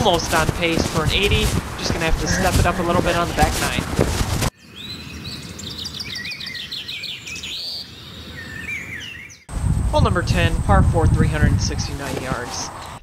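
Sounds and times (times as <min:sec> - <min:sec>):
wild birds chirping and whistling: 0:04.6 - 0:09.5.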